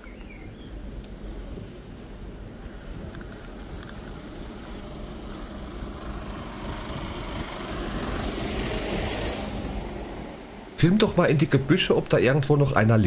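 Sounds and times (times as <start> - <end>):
street noise: 0.0 - 13.0
truck engine running: 3.6 - 8.0.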